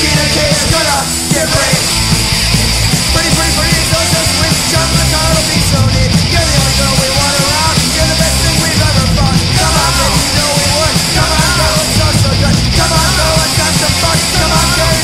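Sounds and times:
person singing: 0.0s - 1.9s, 3.1s - 15.0s
fast drum hits: 0.0s - 15.0s
punk rock band: 0.0s - 15.0s.

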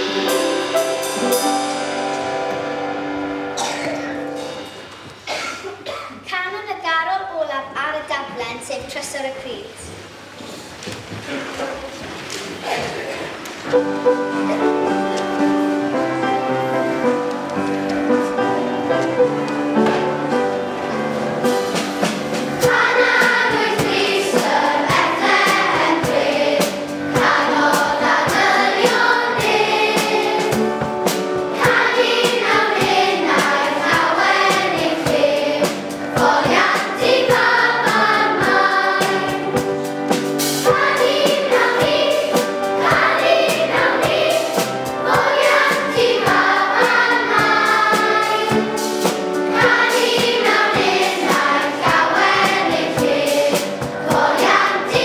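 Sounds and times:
children's choir singing: 0.0s - 4.7s, 21.7s - 55.0s
instrumental accompaniment: 0.0s - 5.9s, 13.4s - 55.0s.

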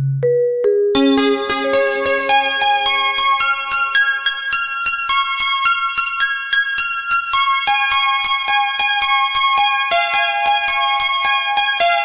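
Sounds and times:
mallet percussion notes: 0.9s - 4.8s.

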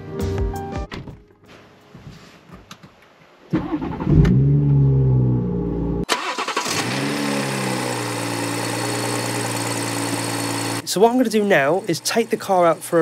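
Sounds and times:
car engine starting and idling: 3.5s - 10.9s.

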